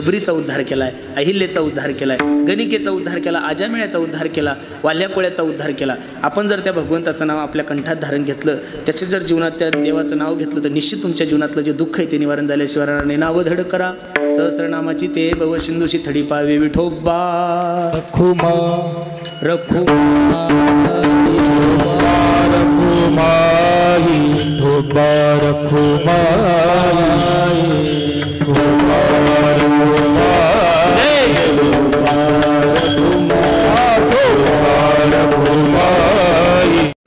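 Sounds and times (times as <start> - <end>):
percussion strikes: 1.6 - 5.1, 9.5 - 37.0
man singing: 8.0 - 37.0.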